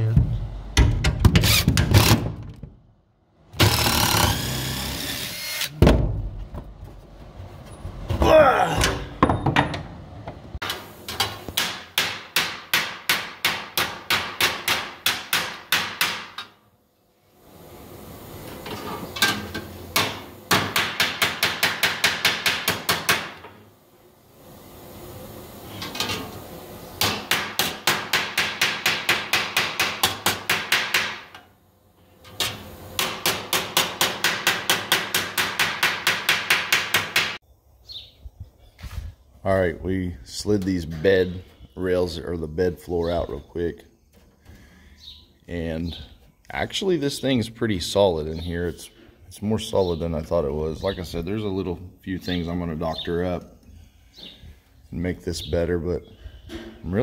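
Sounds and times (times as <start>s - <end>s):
hammer striking steel panel: 27.0s - 31.4s, 33.0s - 37.4s.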